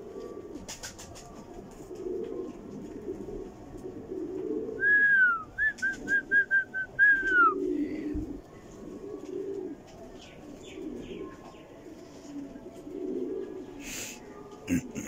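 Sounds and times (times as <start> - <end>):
pigeons cooing: 0.0 - 15.0
person whistling: 4.8 - 7.6.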